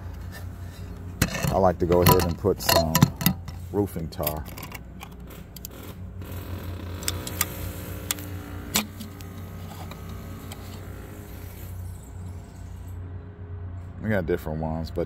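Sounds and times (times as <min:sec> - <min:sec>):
droning vehicle engine: 0:00.0 - 0:15.0
tools clicking on metal roof: 0:01.2 - 0:03.6.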